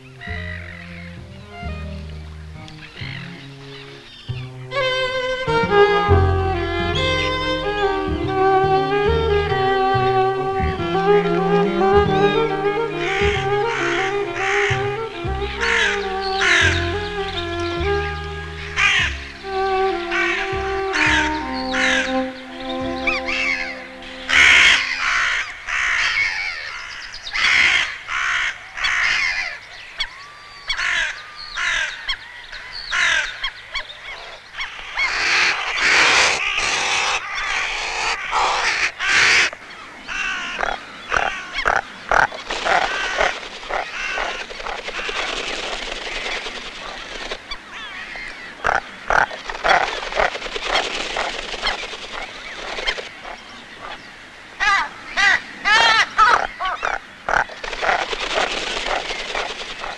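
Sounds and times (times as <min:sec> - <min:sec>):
crows cawing: 0:23.1 - 0:29.6, 0:30.7 - 0:32.1, 0:34.7 - 0:45.3, 0:47.7 - 0:49.9, 0:54.6 - 0:58.1.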